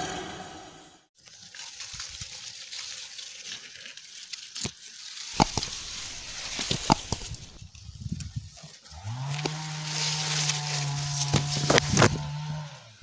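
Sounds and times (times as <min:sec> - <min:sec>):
rustles: 0:01.2 - 0:13.0
sharp clicks: 0:05.4 - 0:07.6.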